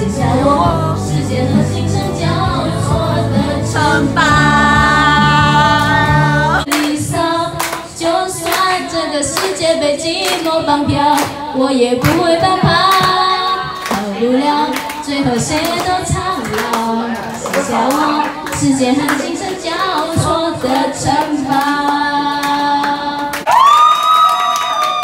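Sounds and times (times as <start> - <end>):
woman singing into a microphone: 0.0 - 23.4
karaoke backing track: 0.0 - 23.5
people clapping along: 6.6 - 25.0.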